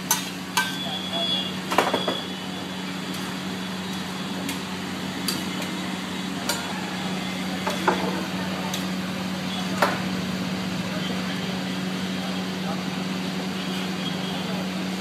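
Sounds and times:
metal blade chopping on griddle: 0.0s - 0.8s.

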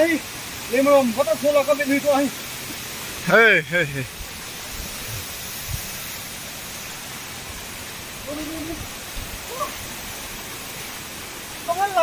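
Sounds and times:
waterfall rushing: 0.0s - 12.0s
faint voice calling out: 8.2s - 9.9s.

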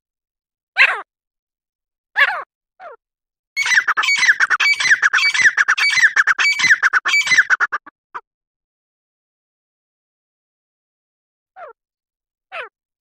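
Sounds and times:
francolin calling: 3.6s - 7.9s.

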